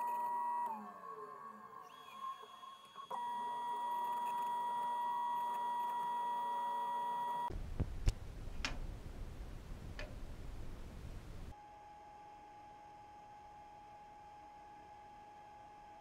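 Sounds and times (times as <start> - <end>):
low rumbling hiss: 7.5 - 11.6.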